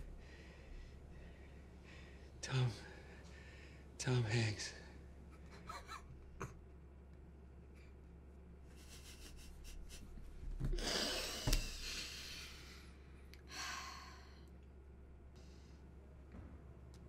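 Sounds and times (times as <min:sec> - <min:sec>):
muffled stifled laughter: 0:05.3 - 0:06.6.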